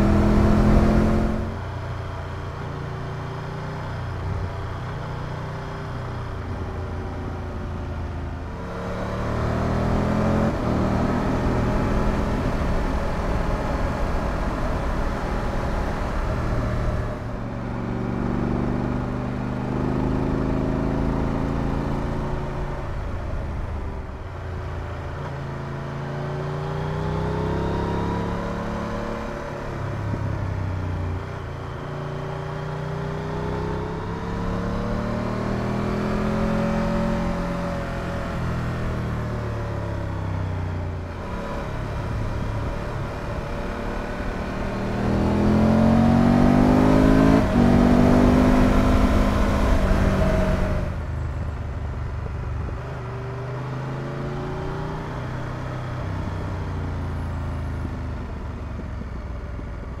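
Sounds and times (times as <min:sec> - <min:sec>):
wind and road noise: 0:00.0 - 1:00.0
motorcycle engine revving: 0:31.0 - 0:51.4.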